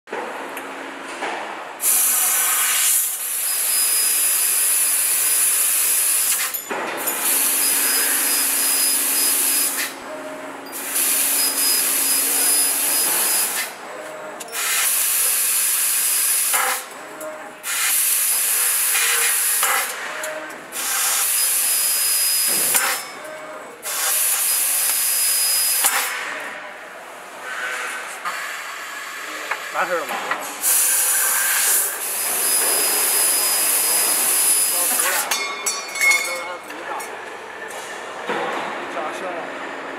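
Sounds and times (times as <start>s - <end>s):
laser cutter gas jet hiss: 1.8s - 6.6s, 7.2s - 9.9s, 10.8s - 13.7s, 14.6s - 16.8s, 17.6s - 20.0s, 20.8s - 23.0s, 23.8s - 26.2s, 30.6s - 35.2s.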